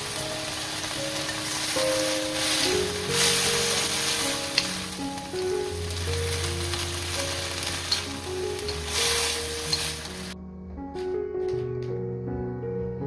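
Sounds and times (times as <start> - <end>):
food sizzling in a wok: 0.0 - 10.4
soft background music: 0.0 - 13.0.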